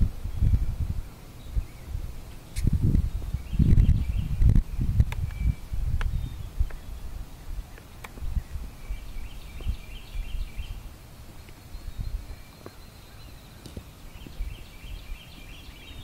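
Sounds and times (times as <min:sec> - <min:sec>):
wind rumbling on microphone: 0:00.0 - 0:16.0
songbird twittering: 0:00.2 - 0:16.0.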